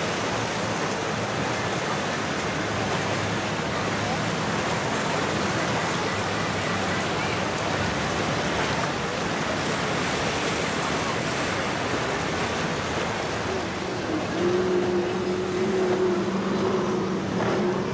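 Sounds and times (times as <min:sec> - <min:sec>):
waves rushing: 0:00.0 - 0:17.9.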